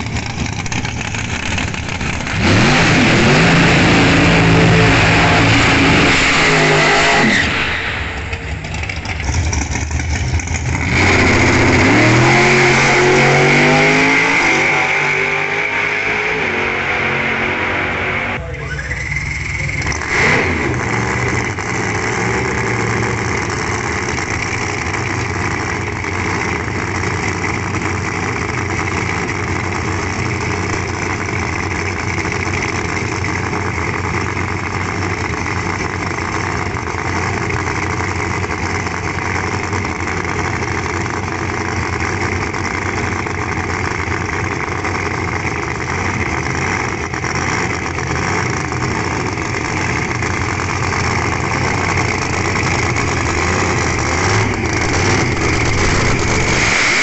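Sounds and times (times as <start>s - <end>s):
drag car engine idling: 0.0s - 2.7s, 7.8s - 12.0s, 18.1s - 56.6s.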